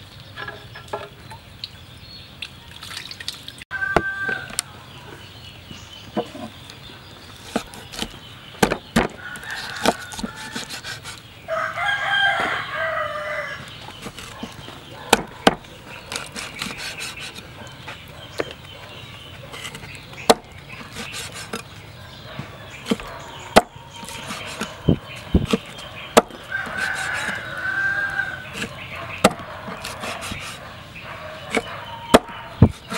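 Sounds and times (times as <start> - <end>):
rooster crowing: 3.7 - 4.8, 11.5 - 13.7, 26.4 - 28.6
cleaver chopping on wooden board: 7.5 - 11.0, 14.0 - 17.4, 19.6 - 21.6, 22.8 - 27.4, 28.5 - 30.6, 31.5 - 32.9.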